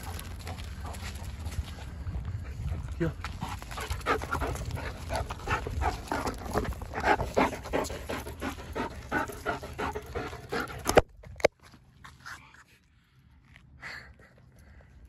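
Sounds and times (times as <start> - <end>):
dog panting hard: 2.5 - 11.0.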